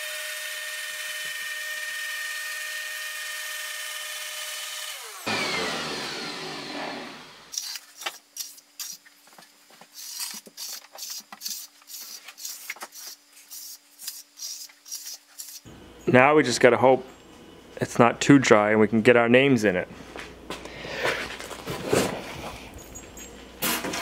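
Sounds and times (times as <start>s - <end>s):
orbital sander running: 0.0s - 7.5s.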